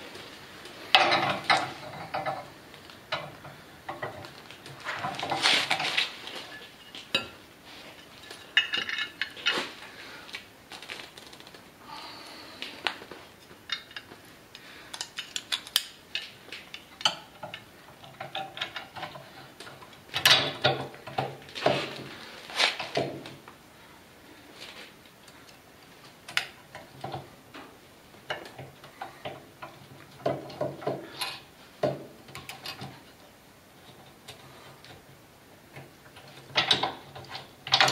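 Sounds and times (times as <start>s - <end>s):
metal parts clicking and clinking: 3.1s - 9.7s, 13.6s - 14.2s, 14.9s - 21.9s, 36.2s - 37.9s.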